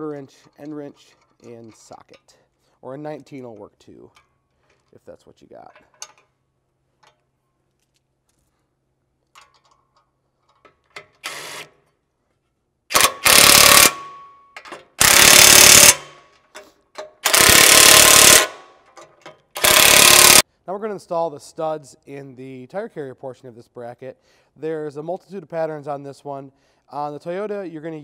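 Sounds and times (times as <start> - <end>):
impact driver hammering: 12.9 - 14.4, 15.0 - 16.2, 17.2 - 18.7, 19.6 - 20.4.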